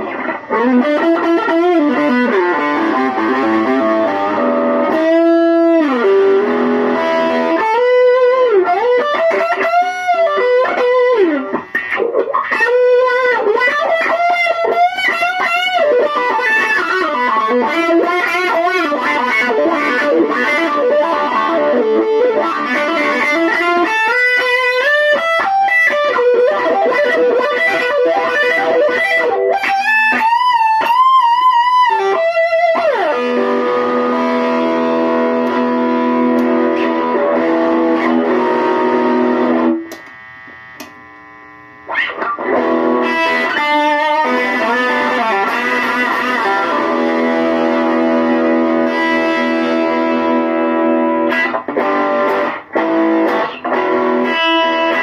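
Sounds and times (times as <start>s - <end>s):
electric blues guitar licks: 0.0s - 55.0s.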